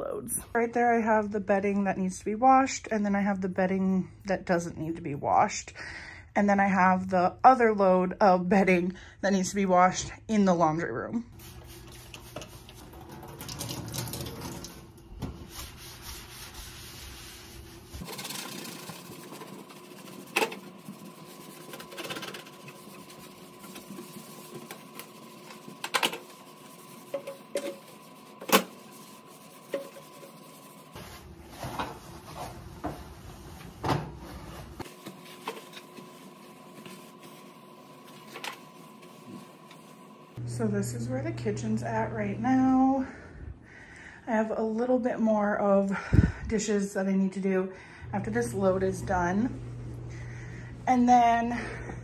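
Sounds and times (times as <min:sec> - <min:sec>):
paper towel wiping: 0:11.4 - 0:12.9, 0:15.3 - 0:40.0
sponge scrubbing: 0:11.4 - 0:13.1, 0:15.2 - 0:39.9
faint steady hum: 0:34.2 - 0:52.0.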